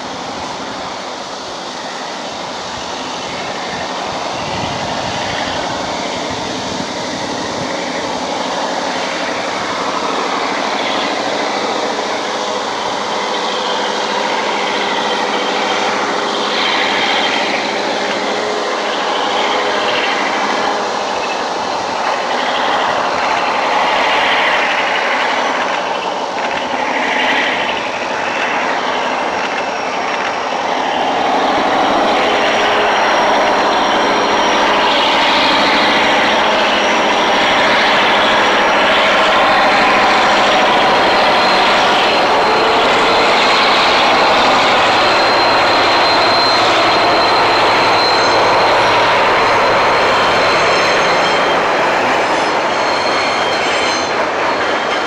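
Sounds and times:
locomotive engine drone: 0.0 - 55.0.

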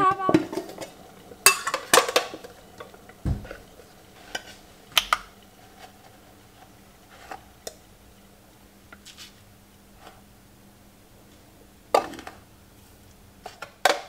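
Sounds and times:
dull thump: 3.2 - 3.6.

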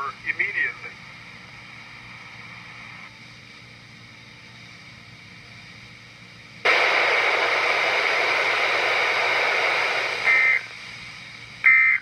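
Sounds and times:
loud radio static: 0.0 - 1.0, 6.7 - 10.7, 11.6 - 12.0
faint radio hiss: 0.0 - 3.4, 6.7 - 12.0.

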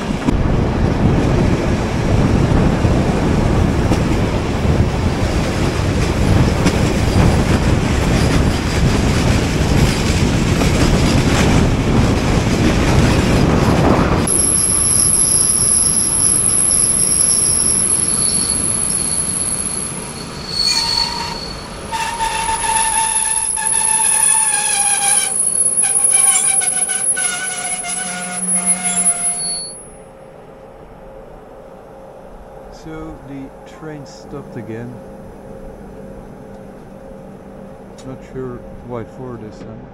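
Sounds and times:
train rumbling over rails: 0.0 - 39.9
train wheel squeal: 14.3 - 30.0.

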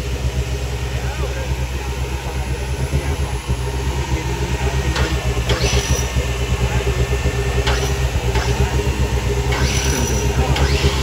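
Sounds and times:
off-road engine throbbing: 0.0 - 11.0
sharp knocks: 7.6 - 8.7.

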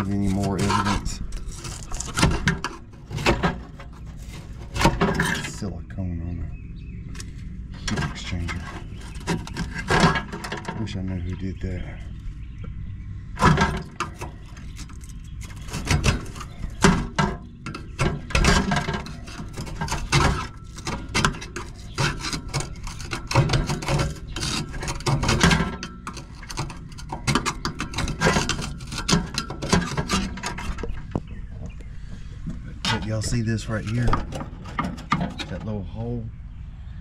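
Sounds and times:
screwdriver scraping metal: 0.0 - 5.6, 8.0 - 10.7, 13.4 - 30.9.

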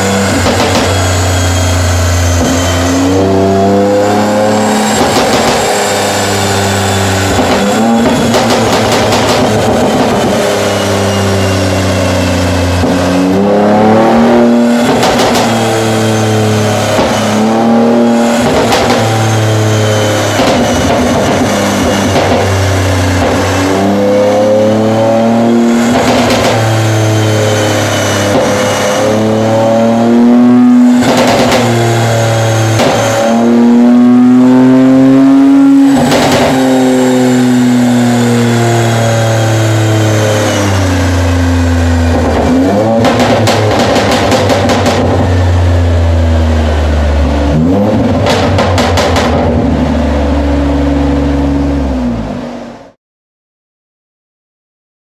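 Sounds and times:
car engine revving: 0.0 - 53.0
exhaust crackling and popping: 7.2 - 10.6, 42.1 - 45.4, 47.1 - 50.1.

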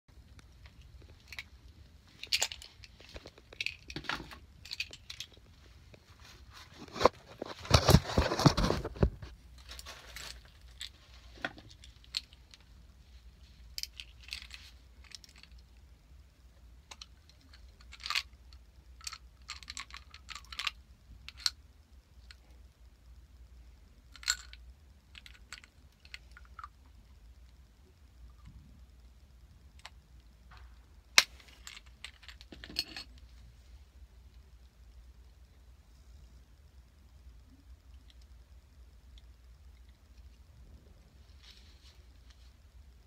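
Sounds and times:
small objects clicking and rattling: 0.4 - 6.0, 6.9 - 12.8, 13.4 - 15.9, 16.8 - 22.5, 24.0 - 27.6, 29.7 - 33.3
rubbing and rustling: 2.0 - 15.5, 41.1 - 42.7.

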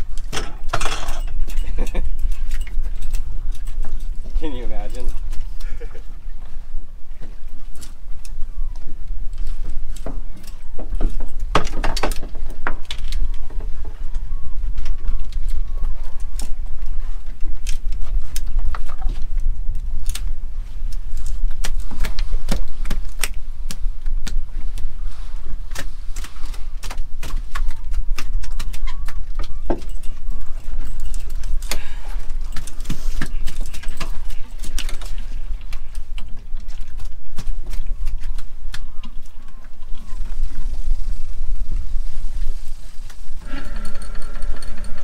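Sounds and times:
boat engine rumble: 0.0 - 45.0.

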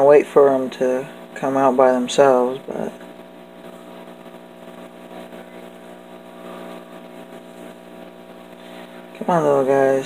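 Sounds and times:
small electric motor humming: 2.0 - 10.0.

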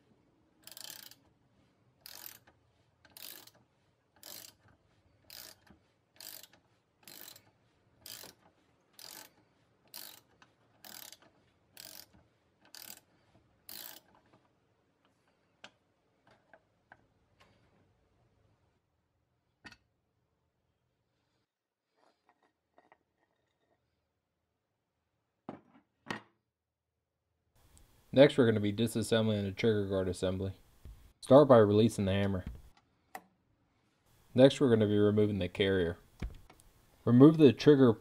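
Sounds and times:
socket ratchet clicking: 0.6 - 1.2, 2.0 - 3.6, 4.2 - 4.7, 5.3 - 7.5, 8.1 - 8.4, 9.0 - 9.3, 9.9 - 13.1, 13.7 - 14.2.

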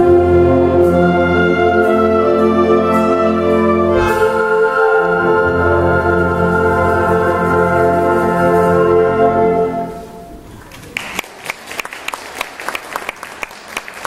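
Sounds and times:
concert band holding a chord: 3.0 - 10.4
audience applauding: 10.5 - 14.0.

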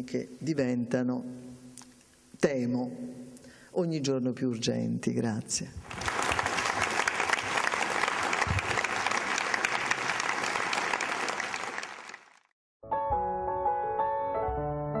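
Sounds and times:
audience applauding: 5.8 - 12.5
music: 12.8 - 15.0.

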